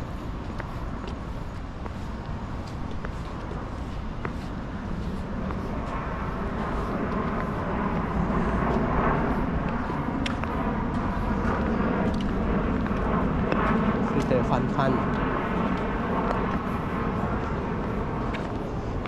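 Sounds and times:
steady low city rumble: 0.0 - 19.0.

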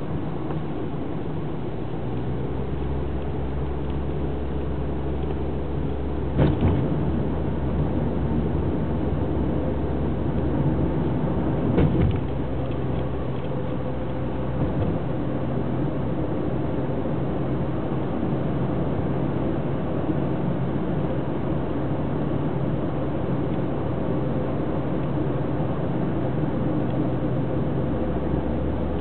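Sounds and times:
car engine and tyre hum: 0.0 - 29.0.

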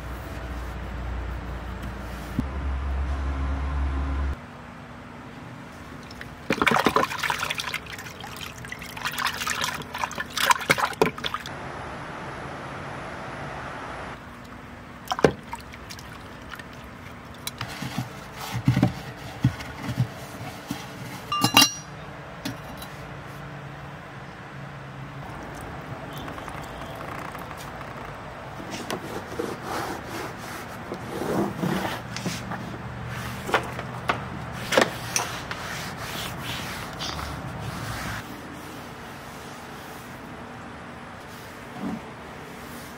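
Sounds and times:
sponge scrubbing plastic: 15.3 - 21.3, 28.6 - 33.7, 34.6 - 40.2.

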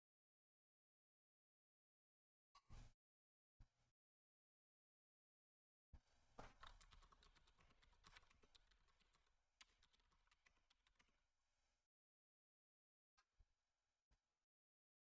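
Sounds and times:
typing on computer keyboard: 6.6 - 11.1.

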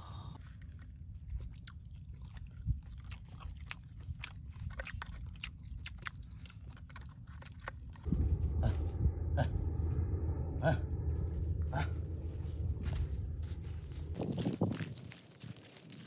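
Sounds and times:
crunchy chewing: 0.0 - 8.1
low rumble: 7.8 - 15.5.

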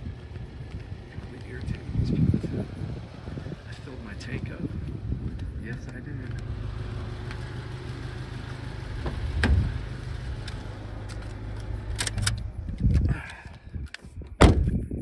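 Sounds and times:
car engine idling: 0.0 - 13.8
loud thump: 9.0 - 9.7, 14.4 - 14.8.

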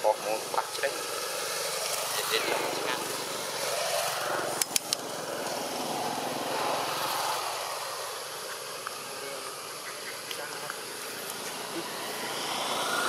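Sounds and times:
small engine running: 0.4 - 13.0
sharp clicks: 4.6 - 5.0.

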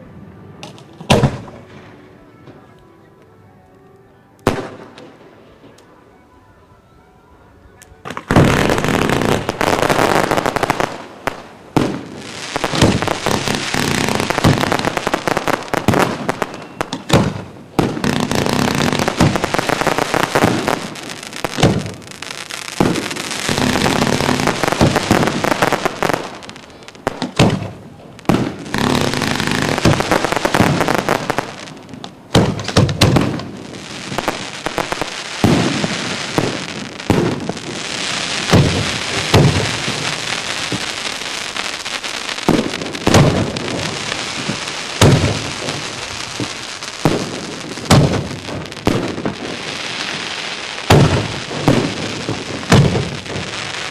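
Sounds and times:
fireworks crackling: 4.4 - 6.0, 7.9 - 53.9
firework shells bursting: 11.8 - 41.1, 41.9 - 53.9.

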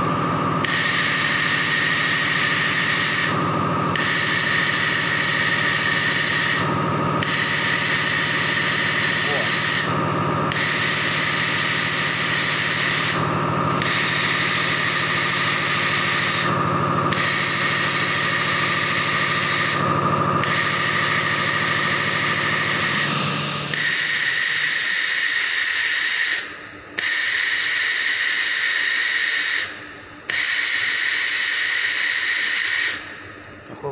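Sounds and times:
laser welder hissing: 0.7 - 3.4, 4.0 - 19.8, 20.4 - 26.4.

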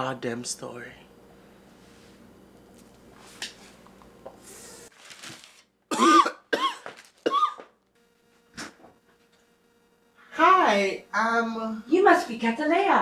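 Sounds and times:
person coughing harshly: 5.9 - 7.7.

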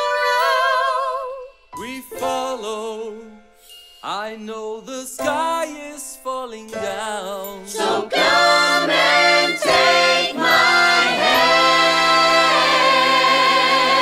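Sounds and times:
voices singing together: 0.0 - 1.5, 7.6 - 14.0.

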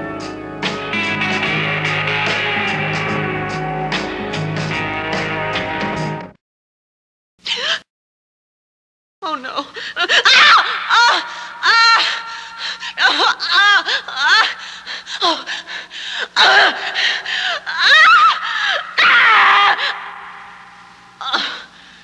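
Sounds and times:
shrieking and wailing voices: 10.2 - 14.6, 16.4 - 21.7.

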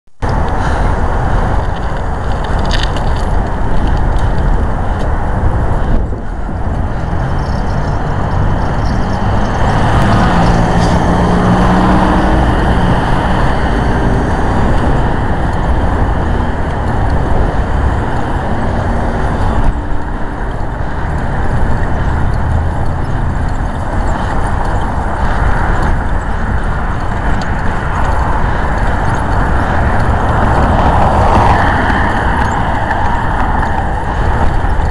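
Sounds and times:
vehicle engine and road noise: 0.1 - 34.9.

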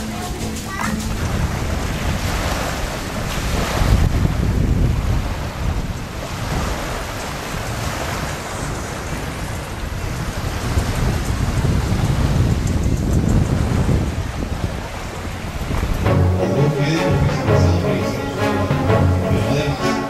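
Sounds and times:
small waves washing ashore: 0.0 - 12.6, 13.4 - 20.0
wind buffeting microphone: 0.0 - 16.0.

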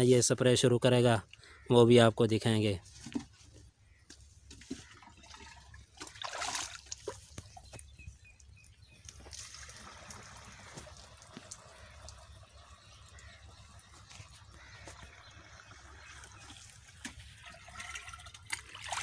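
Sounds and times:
liquid pouring into plastic tank: 14.0 - 19.0.

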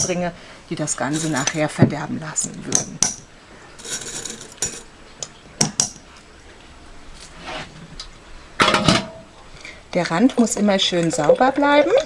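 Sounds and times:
liquid pouring: 10.1 - 12.0.

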